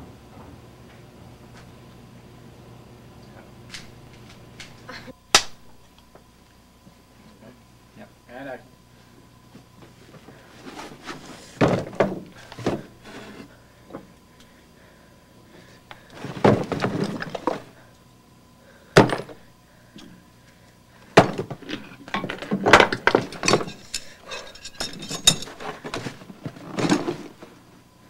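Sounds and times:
objects clattering and thudding: 10.0 - 14.1, 16.0 - 17.8, 18.9 - 20.1, 21.0 - 27.7.

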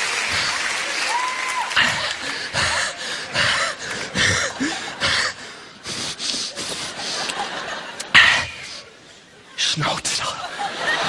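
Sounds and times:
man breathing hard: 1.8 - 7.3.

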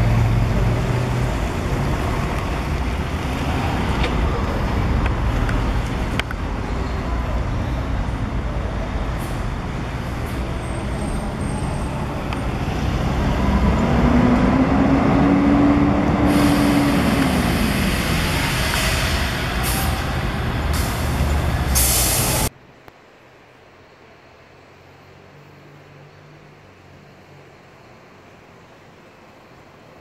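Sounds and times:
air brakes hissing: 16.2 - 22.5.

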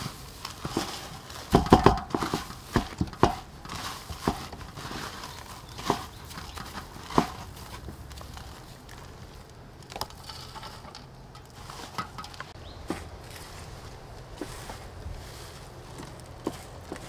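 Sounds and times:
breadcrumbs crunching and rustling: 0.0 - 17.0
food knocking on metal tray: 0.7 - 4.7.

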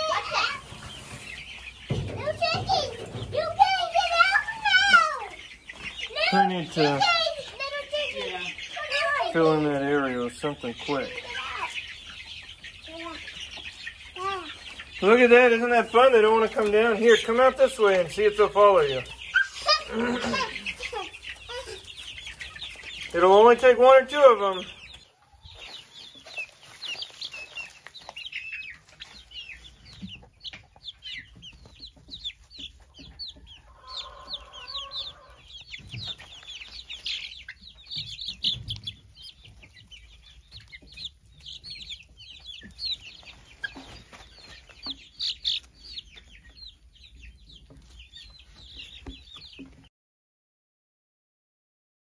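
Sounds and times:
chicks peeping: 0.0 - 49.9.

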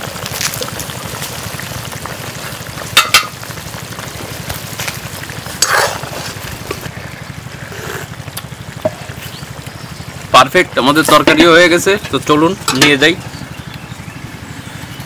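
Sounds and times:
curry boiling and sizzling: 0.0 - 15.0
low steady rumble: 0.0 - 15.0
metal lid and spoon clinking: 12.7 - 13.0.

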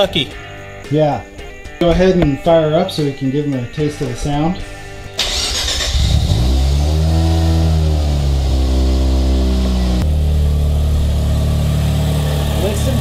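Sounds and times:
rotary engine revving and idling: 5.2 - 13.0.

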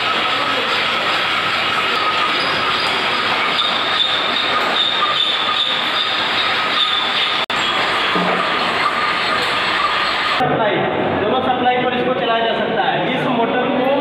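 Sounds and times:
files and hacksaws rasping on metal: 0.0 - 10.4.

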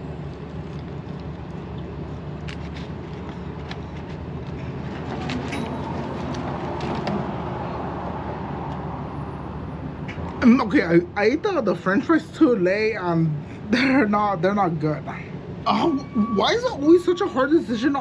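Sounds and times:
vehicle passing: 4.4 - 11.0.

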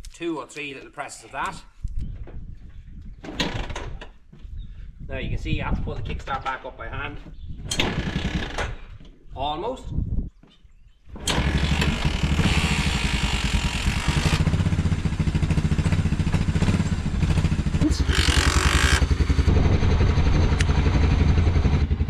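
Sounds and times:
four-stroke engine starting and running: 7.7 - 8.6, 11.1 - 22.0.

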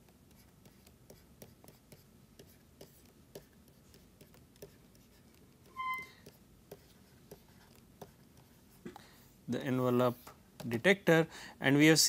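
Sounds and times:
brief high squeak: 5.7 - 6.2.

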